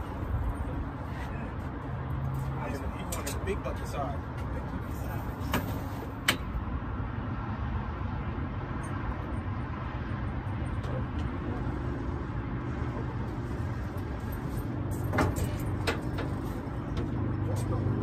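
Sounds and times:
low motor hum: 9.0 - 18.0.

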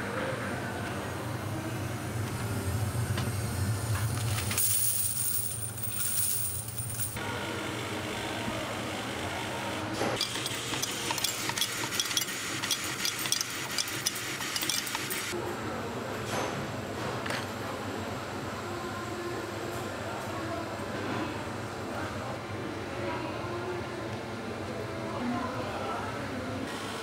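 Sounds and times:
press machinery humming: 0.0 - 15.8
coins clattering into plastic bag: 4.2 - 7.2.

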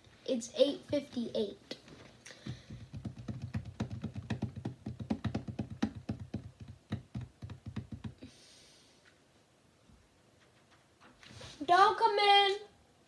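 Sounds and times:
fingers tapping on touchscreen: 2.4 - 8.2.

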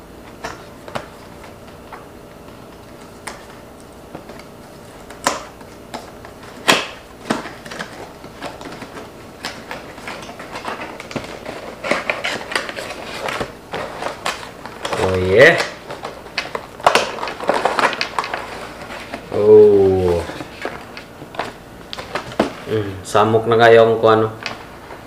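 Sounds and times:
cardboard lid rustling: 7.2 - 22.6.

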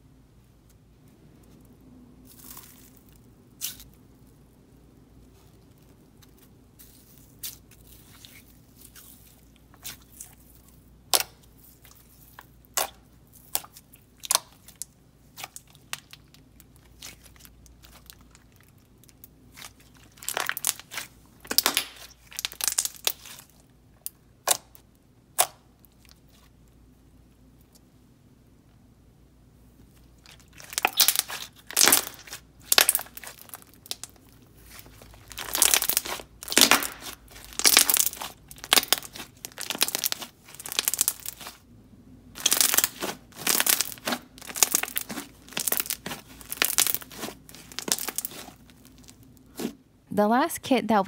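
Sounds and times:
slime clicking and popping: 11.1 - 11.5, 20.2 - 23.4, 24.0 - 25.6, 30.6 - 34.2, 35.3 - 41.6, 42.4 - 48.6.

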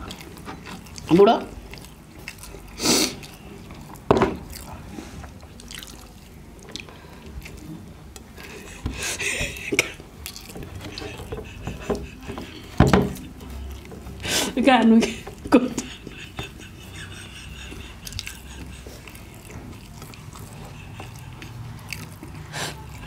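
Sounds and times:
wet chewing smacks: 0.0 - 14.3, 15.3 - 23.0
fingers squishing rice on steel plate: 16.0 - 23.0.

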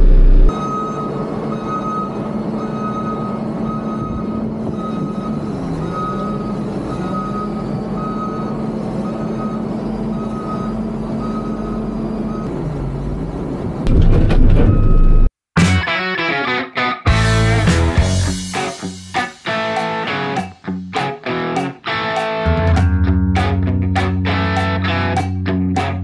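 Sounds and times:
loud low rumble: 0.0 - 0.5
wheel loader engine running: 0.0 - 15.3
back-up alarm beeping: 0.2 - 12.5.

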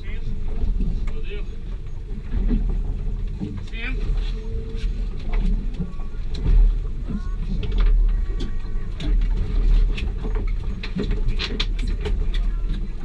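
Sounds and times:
wind and water against hull: 0.0 - 13.0
sharp clicks and knocks: 5.2 - 13.0.

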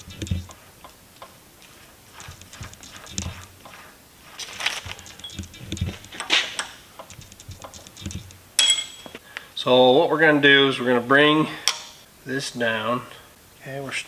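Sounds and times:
metallic clicks and knocks of drill chuck: 4.9 - 8.4.

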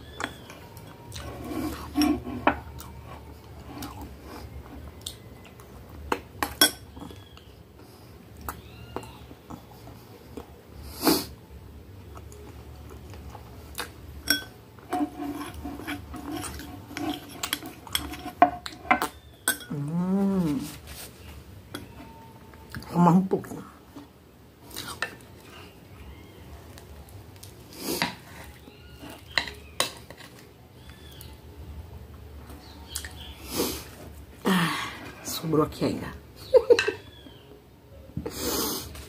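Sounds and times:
metal spoon clinking on glass bowl: 6.5 - 6.9, 14.2 - 19.8.

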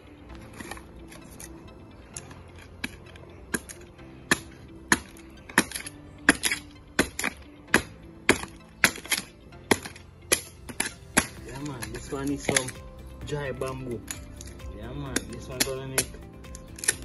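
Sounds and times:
machete chopping bamboo: 2.8 - 12.8, 15.1 - 17.0.

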